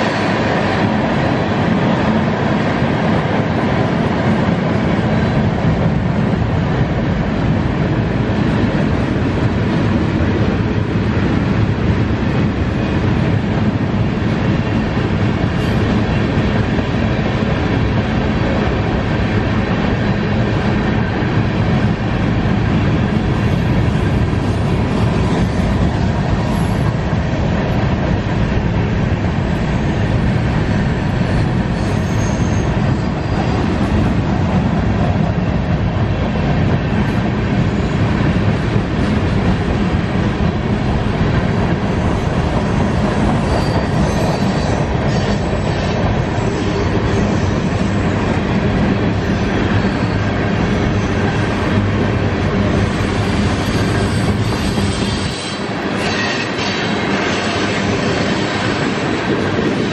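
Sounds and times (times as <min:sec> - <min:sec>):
train wheels rumbling and clattering: 0:00.0 - 0:59.9
faint wheel squeal: 0:31.8 - 0:33.4.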